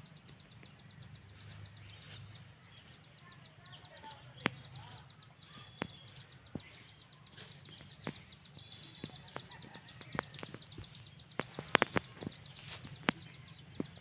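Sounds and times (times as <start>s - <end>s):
faint outdoor background: 0.0s - 14.0s
sharp clicks and knocks: 9.0s - 14.0s.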